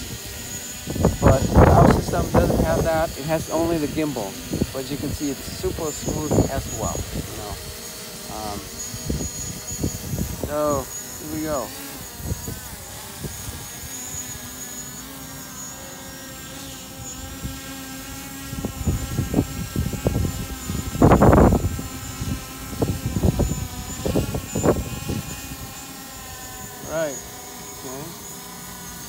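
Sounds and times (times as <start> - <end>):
wind buffeting microphone: 0.0 - 14.4, 18.2 - 25.8
drone propeller whine: 0.0 - 29.0.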